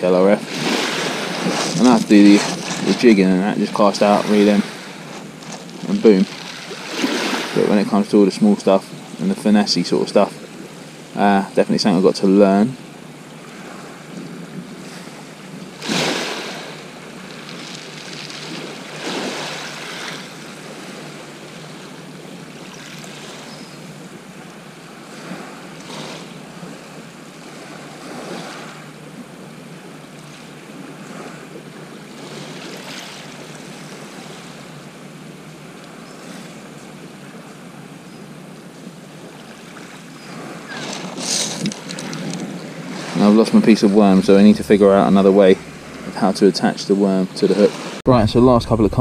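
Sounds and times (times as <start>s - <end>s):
waves lapping on shingle: 0.0s - 48.0s
wind hiss: 0.0s - 49.0s.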